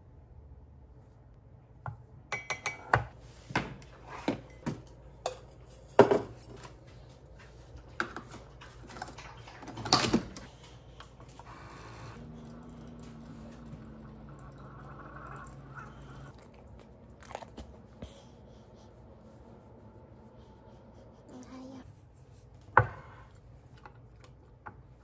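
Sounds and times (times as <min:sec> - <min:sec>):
coffee brewer humming: 0:09.8 - 0:17.4.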